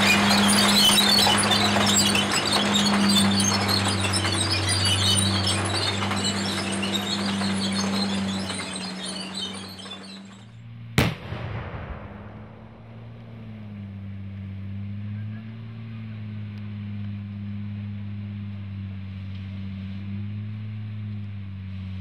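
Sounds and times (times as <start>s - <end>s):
low droning hum: 0.0s - 22.0s
loud sharp bang: 11.0s - 13.9s.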